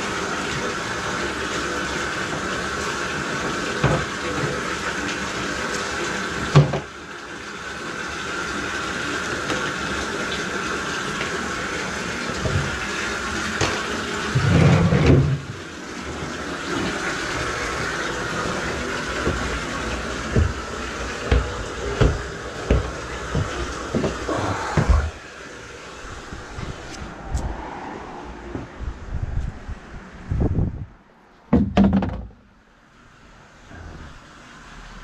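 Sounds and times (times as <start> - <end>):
drain auger wet churning: 0.0 - 27.5
motor whine: 10.5 - 29.5
heavy rumbling knock: 19.0 - 25.2.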